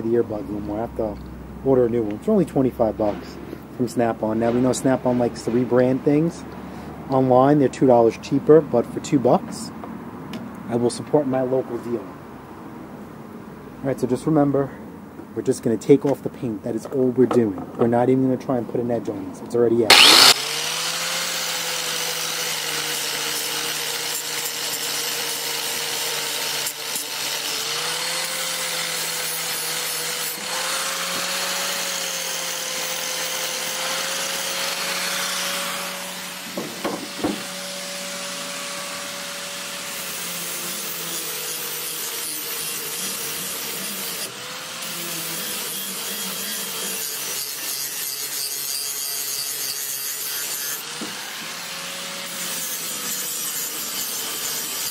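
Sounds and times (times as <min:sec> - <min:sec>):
die grinder whining: 0:19.9 - 0:54.9
short knocks: 0:36.5 - 0:37.5.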